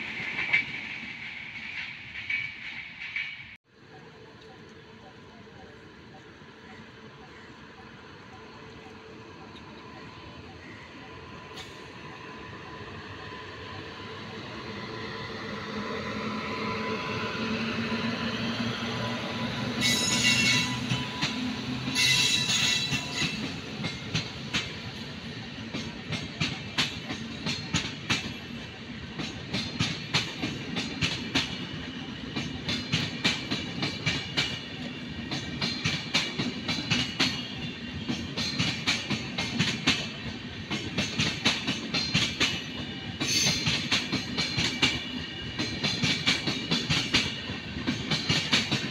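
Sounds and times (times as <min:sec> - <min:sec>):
train wheels clicking over rail joints: 0:19.7 - 0:48.9.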